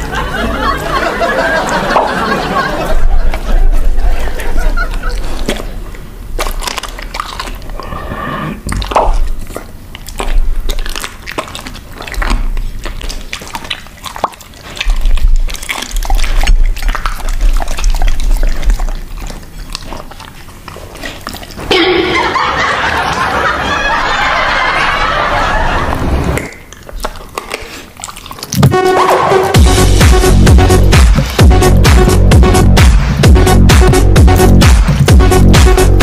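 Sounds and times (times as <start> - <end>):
dog chewing and crunching: 2.9 - 21.7, 26.4 - 36.0
background music: 28.6 - 36.0.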